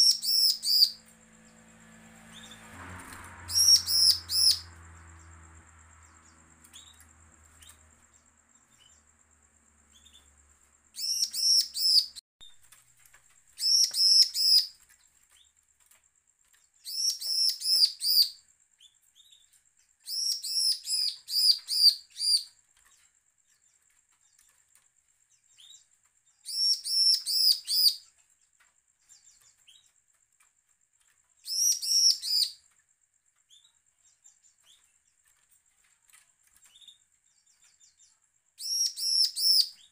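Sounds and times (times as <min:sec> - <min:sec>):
bird singing high rapid notes: 0:00.0 - 0:09.1, 0:09.9 - 0:12.2, 0:13.6 - 0:14.7.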